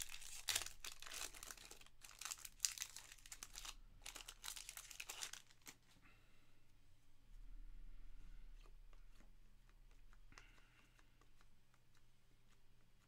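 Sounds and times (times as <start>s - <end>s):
foil wrapper crinkling and tearing: 0.0s - 5.8s.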